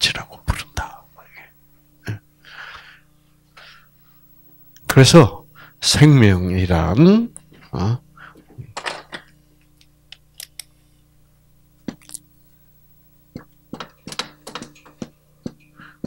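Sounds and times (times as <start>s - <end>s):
faint hum: 0.0s - 16.0s.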